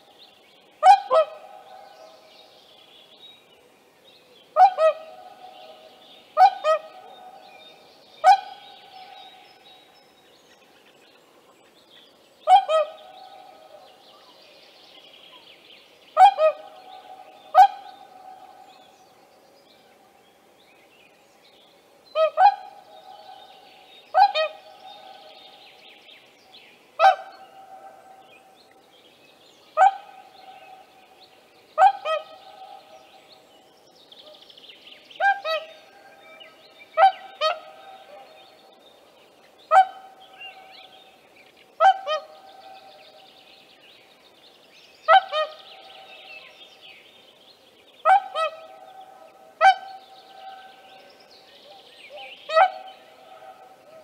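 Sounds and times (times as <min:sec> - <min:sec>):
swans calling: 0:00.8 - 0:01.8, 0:04.6 - 0:05.8, 0:06.4 - 0:07.4, 0:12.5 - 0:13.8, 0:16.2 - 0:18.6, 0:22.1 - 0:23.5, 0:24.1 - 0:25.3, 0:27.0 - 0:28.1, 0:31.8 - 0:32.9, 0:35.2 - 0:35.8, 0:37.0 - 0:38.3, 0:39.7 - 0:40.2, 0:41.8 - 0:43.0, 0:45.1 - 0:45.9, 0:48.0 - 0:50.8, 0:52.1 - 0:54.0.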